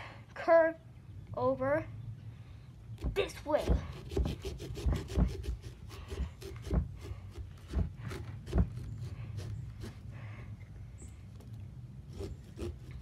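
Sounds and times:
small saw cutting pumpkin: 0:03.0 - 0:10.1, 0:12.0 - 0:13.0.

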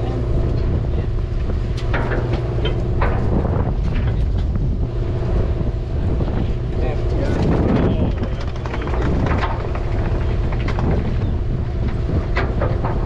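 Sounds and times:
diesel boat engine droning: 0:00.0 - 0:13.0
wind buffeting microphone: 0:00.0 - 0:13.0
gear clattering on deck: 0:01.8 - 0:04.6, 0:07.1 - 0:13.0.

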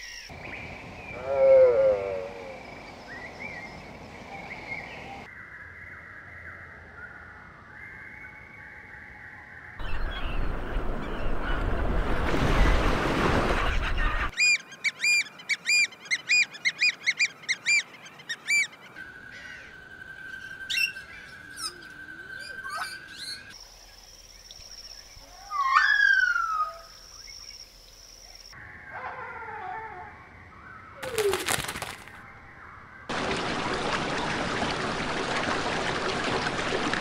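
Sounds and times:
downward-slurred bird calls: 0:25.2 - 0:27.0.

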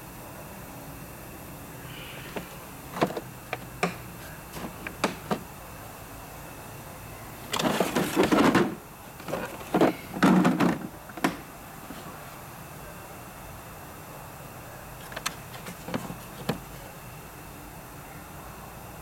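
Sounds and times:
tools clattering in a drawer: 0:07.5 - 0:11.4, 0:15.0 - 0:16.6.

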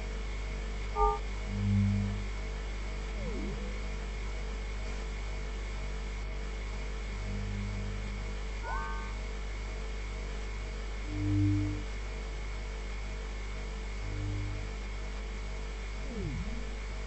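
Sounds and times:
steady electronic hum: 0:00.0 - 0:17.0
soft low synth tone: 0:00.9 - 0:02.2, 0:03.1 - 0:04.0, 0:07.2 - 0:09.3, 0:16.0 - 0:17.0
quick falling pitch sweeps: 0:01.0 - 0:01.2, 0:08.6 - 0:09.2.

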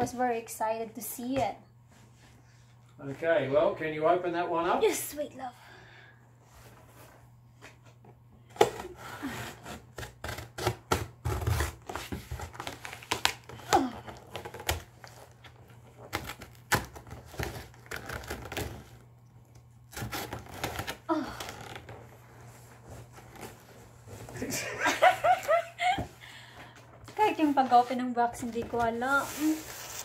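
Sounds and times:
packing tape tearing: 0:08.5 - 0:19.0, 0:19.9 - 0:22.0.

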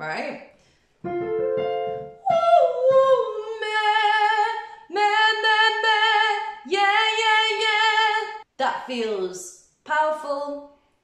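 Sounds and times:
reference notes chord: 0:01.0 - 0:02.4
woman singing with vibrato: 0:02.2 - 0:09.3.

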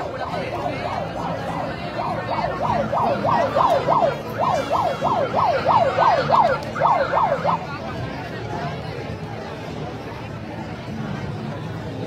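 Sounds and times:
electronic siren yelping: 0:00.3 - 0:07.6.

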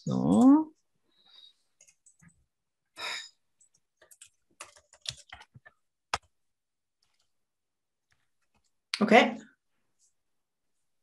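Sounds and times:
typing on computer keyboard: 0:03.6 - 0:06.3.

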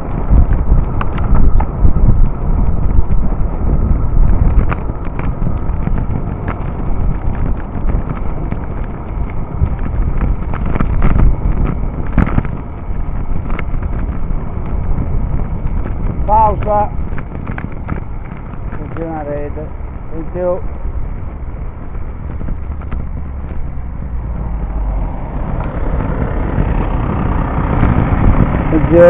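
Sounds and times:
road rumble: 0:00.0 - 0:29.0
wind buffeting microphone: 0:00.0 - 0:29.0.

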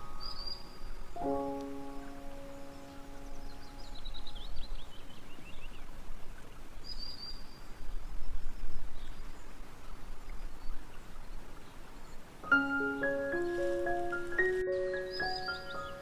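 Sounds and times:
bird chirping: 0:00.0 - 0:06.0, 0:12.0 - 0:16.0.

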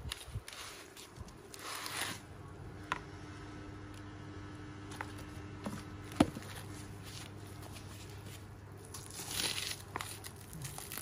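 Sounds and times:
low steady hum: 0:00.0 - 0:11.0
plastic wrapping rustling: 0:06.1 - 0:11.0.

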